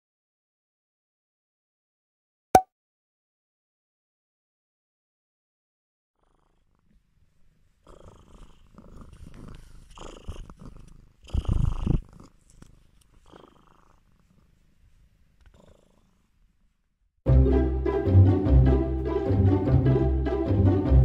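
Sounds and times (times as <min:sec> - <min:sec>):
cat purring: 0:06.2 - 0:16.6.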